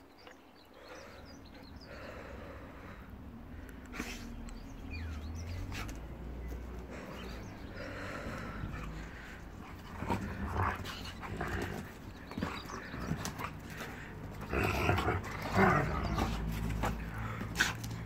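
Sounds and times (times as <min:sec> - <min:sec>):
dogs growling: 0:03.9 - 0:18.0.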